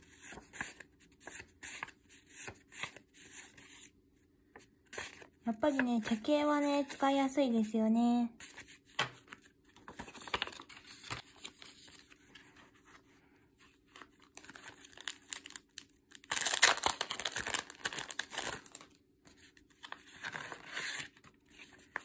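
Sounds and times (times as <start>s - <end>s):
paper cards rustling and tapping: 8.4s - 12.4s
plastic bag crinkling: 14.2s - 18.9s.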